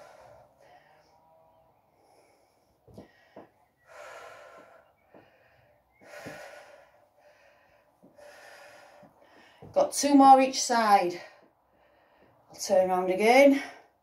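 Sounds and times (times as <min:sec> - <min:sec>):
woman breathing hard: 0:00.0 - 0:01.2, 0:01.9 - 0:09.7, 0:11.2 - 0:12.5.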